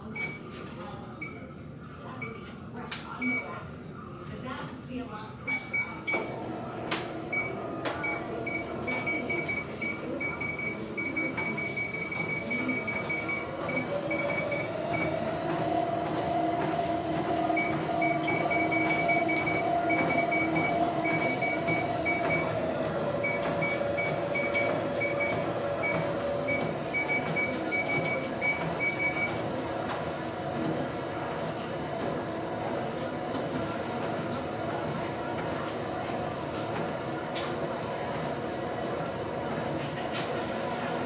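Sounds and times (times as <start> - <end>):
treadmill motor whine: 5.5 - 41.0
footfalls on treadmill belt: 11.2 - 22.6.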